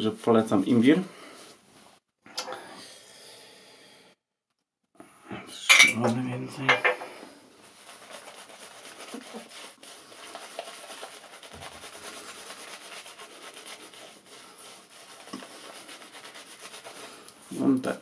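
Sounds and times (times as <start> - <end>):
shaving brush scratchy rubbing: 7.6 - 18.0.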